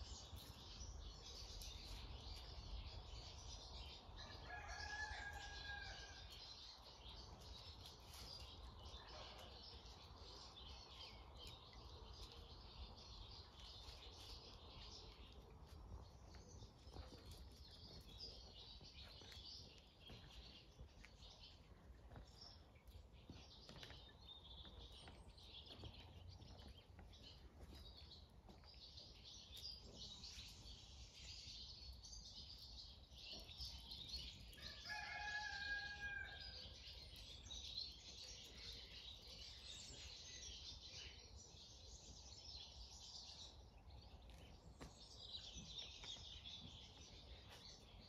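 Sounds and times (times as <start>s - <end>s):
small birds twittering: 0.0s - 48.0s
faint rooster crowing: 4.2s - 6.5s, 34.5s - 36.9s.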